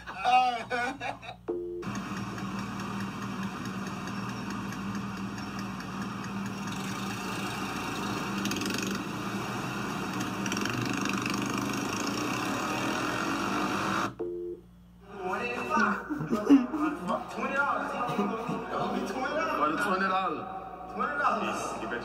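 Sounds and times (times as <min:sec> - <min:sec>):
motorcycle engines idling and revving: 0:01.9 - 0:14.2.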